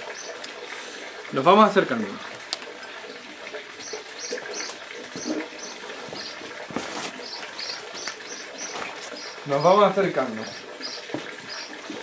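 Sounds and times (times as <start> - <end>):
small bird chirping: 3.8 - 6.5, 7.2 - 11.8.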